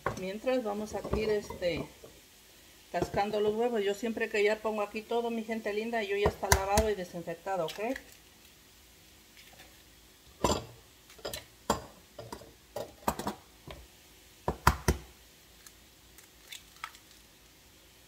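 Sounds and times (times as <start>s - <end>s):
eggs cracking against bowl: 16.2s - 17.2s.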